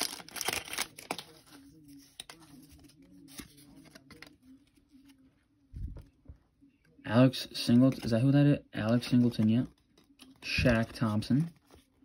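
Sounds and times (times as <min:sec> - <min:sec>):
crinkly wrapper noise: 0:00.0 - 0:01.6
trading cards rustling and clicking: 0:00.0 - 0:04.8, 0:07.7 - 0:12.0.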